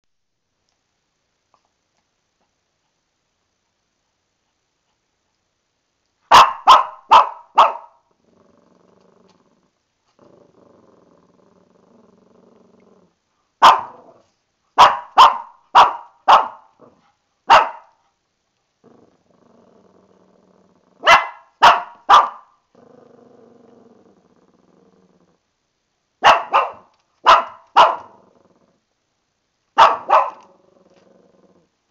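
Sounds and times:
puppy yapping: 6.3 - 8.0, 13.6 - 14.1, 17.5 - 17.9, 21.0 - 22.5, 26.2 - 28.2, 29.8 - 30.5
puppy growling: 8.1 - 13.2, 13.8 - 14.4, 16.7 - 17.2, 18.8 - 21.2, 22.7 - 25.4, 27.7 - 28.9, 29.8 - 31.7.

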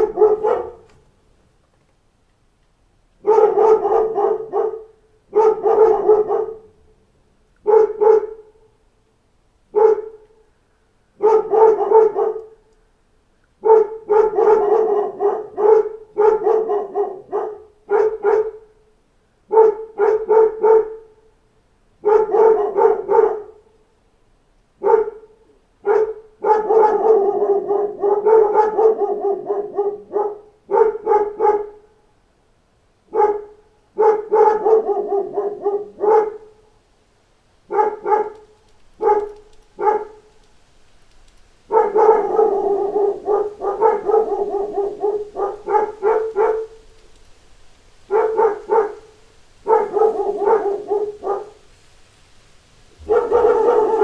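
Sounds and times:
dogs barking: 0.0 - 1.0, 3.2 - 7.0, 7.6 - 8.6, 9.7 - 10.4, 11.2 - 12.6, 13.6 - 18.8, 19.5 - 21.2, 22.0 - 23.7, 24.8 - 31.8, 33.1 - 36.6, 37.7 - 40.3, 41.6 - 47.1, 48.0 - 51.8, 52.9 - 54.0.

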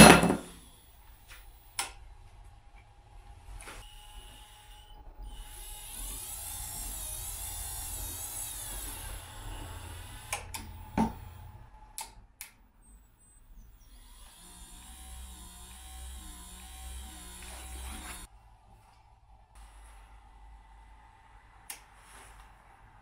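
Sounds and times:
electric motor whining: 3.8 - 11.8, 12.9 - 18.3
motor humming: 3.8 - 18.3.

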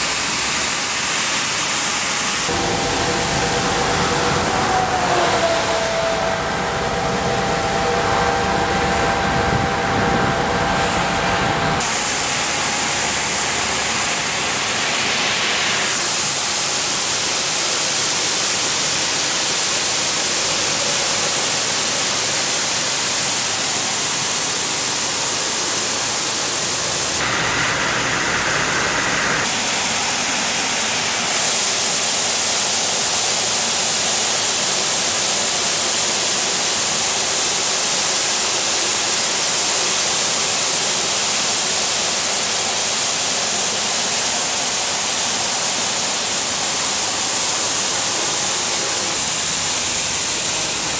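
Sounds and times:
truck machine hum: 0.0 - 18.4, 19.6 - 34.6, 42.0 - 50.9
road suction unit rushing hiss: 0.0 - 50.9.

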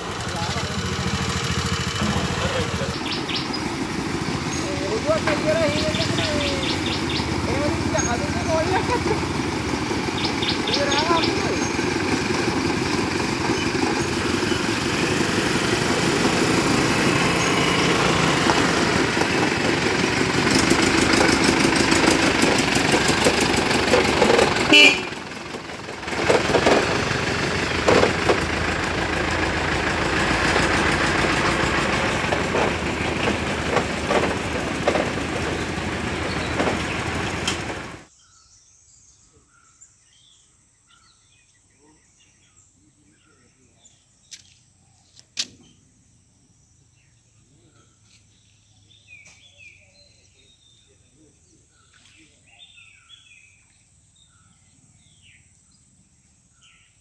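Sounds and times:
birds chirping: 0.0 - 57.0
knocks: 27.8 - 28.5, 32.1 - 38.0.

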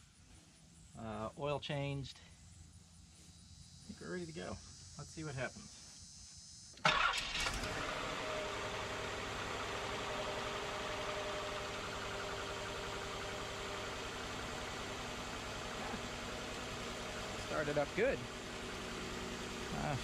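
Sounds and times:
car engine starting and idling: 6.6 - 20.0.

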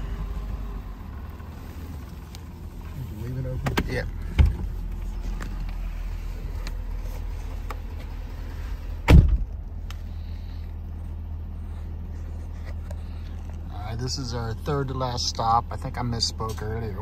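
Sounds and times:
truck engine idling: 0.0 - 17.0
loud thump: 9.0 - 9.6.

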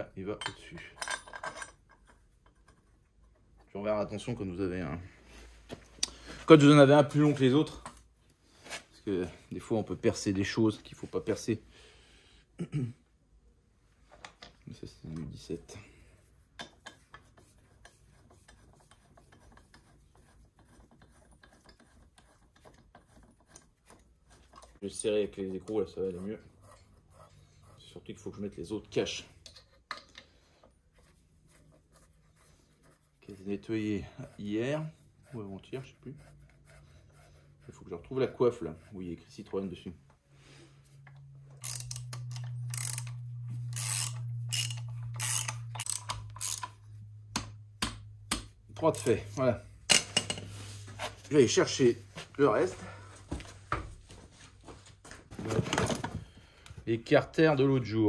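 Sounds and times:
steady low hum: 34.0 - 53.7
ratchet wrench clicking: 41.6 - 46.8.

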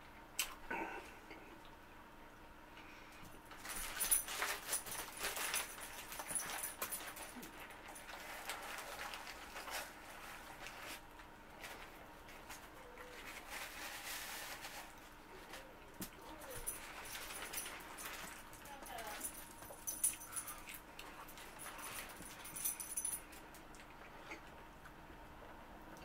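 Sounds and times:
paper wrapper crinkling: 3.5 - 15.6.

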